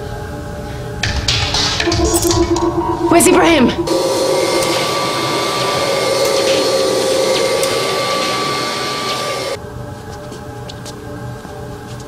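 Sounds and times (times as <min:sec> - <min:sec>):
vacuum cleaner whining: 0:04.9 - 0:09.6.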